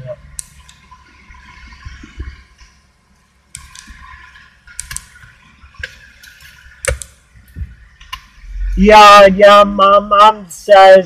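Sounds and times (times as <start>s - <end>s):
car engine and road rumble: 0.0s - 11.0s
sharp clicks: 4.7s - 5.1s, 6.8s - 7.2s.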